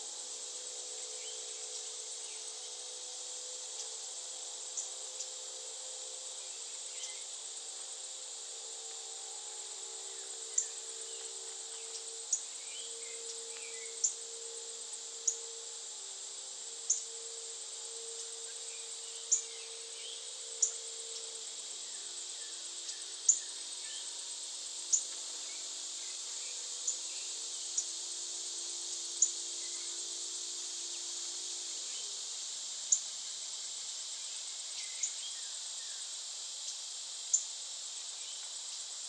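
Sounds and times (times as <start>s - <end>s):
insect chorus: 0.0s - 39.0s.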